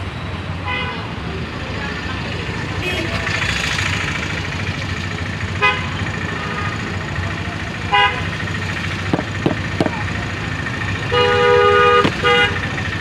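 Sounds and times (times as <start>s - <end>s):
street traffic: 0.0s - 13.0s
vehicle horn toots: 2.8s - 3.2s, 5.5s - 7.0s, 7.8s - 8.4s, 11.0s - 12.8s.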